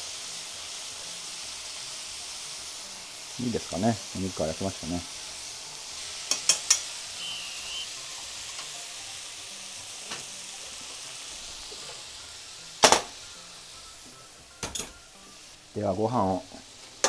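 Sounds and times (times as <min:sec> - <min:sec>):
meat sizzling in a frying pan: 0:00.0 - 0:17.0
chopsticks tapping pan: 0:06.3 - 0:06.9
pan clunk: 0:12.8 - 0:13.1.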